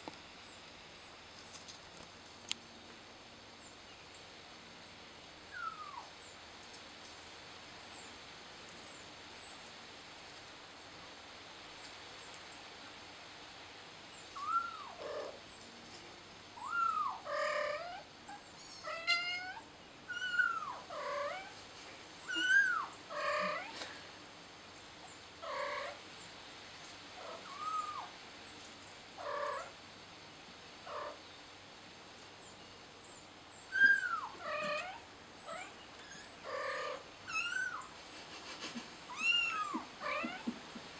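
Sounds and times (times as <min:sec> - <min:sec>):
kitten mewing: 0:38.6 - 0:40.6.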